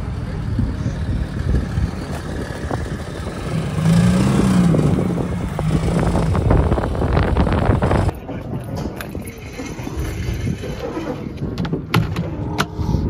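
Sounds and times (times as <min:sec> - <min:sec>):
car engine running at low speed: 0:00.0 - 0:08.1.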